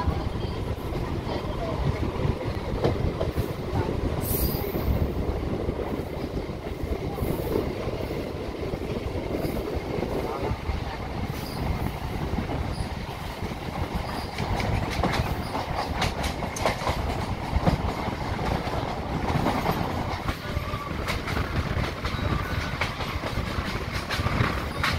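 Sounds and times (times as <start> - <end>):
train wheels rumbling: 0.0 - 24.9
wheels clacking over rail joints: 12.6 - 24.9.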